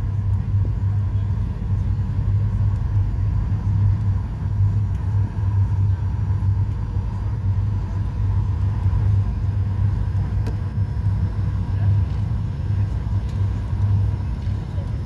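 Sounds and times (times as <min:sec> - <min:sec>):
airplane cabin low rumble: 0:00.0 - 0:15.0.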